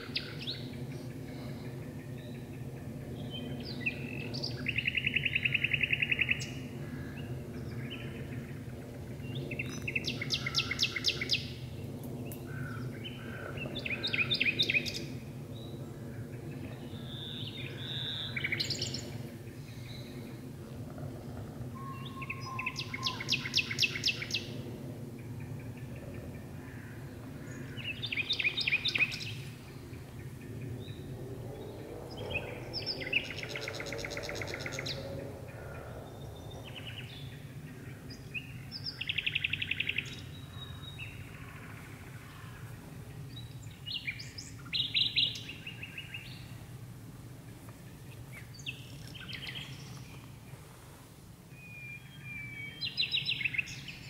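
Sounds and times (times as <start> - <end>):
distant traffic hum: 0.0 - 54.0
nightingale singing: 21.8 - 24.5.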